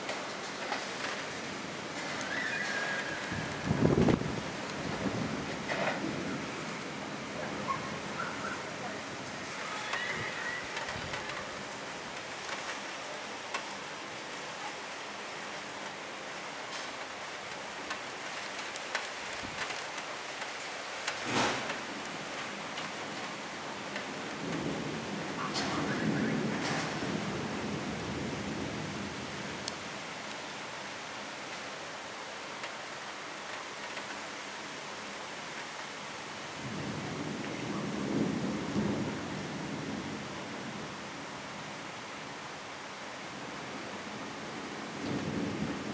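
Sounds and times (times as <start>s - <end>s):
thunder rumbling: 0.0s - 13.7s, 17.0s - 29.7s, 36.6s - 41.1s, 44.9s - 45.9s
heavy rain hissing: 0.0s - 45.9s.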